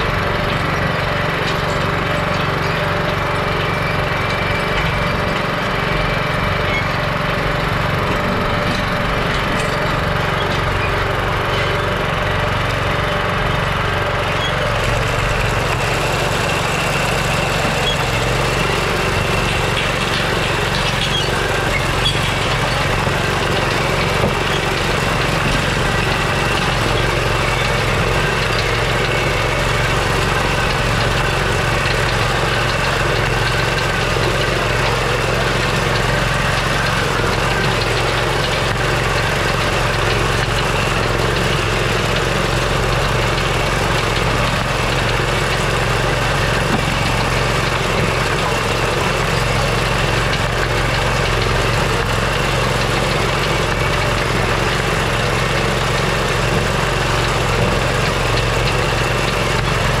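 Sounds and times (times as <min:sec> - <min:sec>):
small gasoline engine running: 0:00.0 - 1:00.0.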